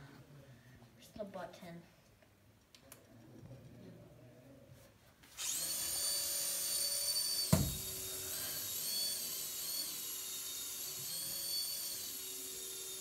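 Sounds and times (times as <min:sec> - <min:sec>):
toy propeller motor whining: 0:05.3 - 0:13.0
thump: 0:07.5 - 0:07.9.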